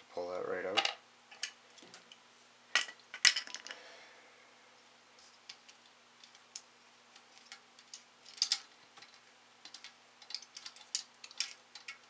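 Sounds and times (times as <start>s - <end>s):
small clicks of plastic parts: 5.5s - 12.0s.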